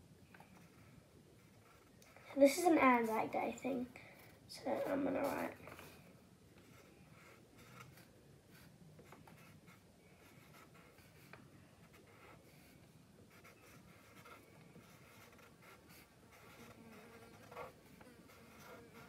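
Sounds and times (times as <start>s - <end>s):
marker writing on paper: 4.6s - 6.0s, 6.6s - 19.0s.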